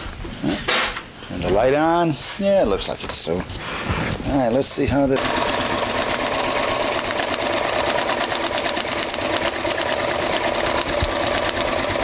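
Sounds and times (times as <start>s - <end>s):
electric sewing machine running: 5.2s - 12.0s.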